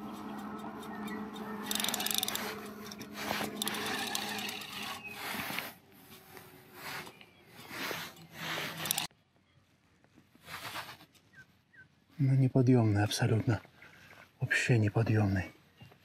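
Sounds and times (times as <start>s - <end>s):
spinning reel whirring and clicking: 0.0s - 5.5s, 8.1s - 9.1s.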